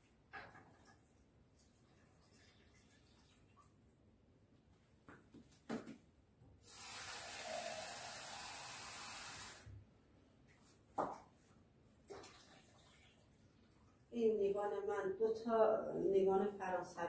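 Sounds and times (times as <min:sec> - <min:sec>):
tap water filling a jug: 0:06.7 - 0:09.7.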